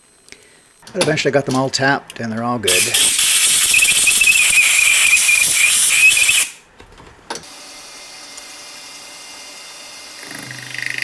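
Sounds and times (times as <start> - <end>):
faint steady hum: 0.0 - 2.7
air blow gun hissing: 2.7 - 6.6.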